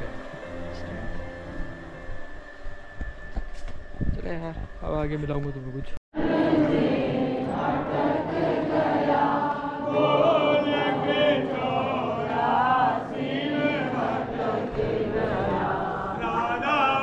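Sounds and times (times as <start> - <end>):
congregation singing a chant: 6.2 - 17.0.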